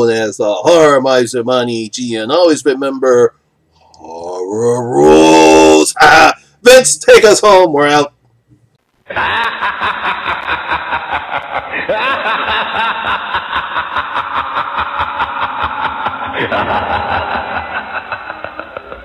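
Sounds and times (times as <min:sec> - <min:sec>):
muffled tinny recorded laughter: 0:09.1 - 0:19.0.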